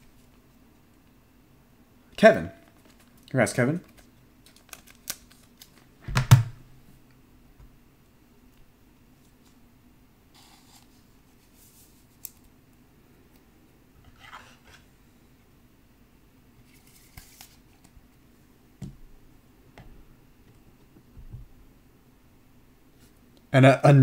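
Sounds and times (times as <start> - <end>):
cards handled in plastic: 2.6 - 5.9, 16.6 - 17.9.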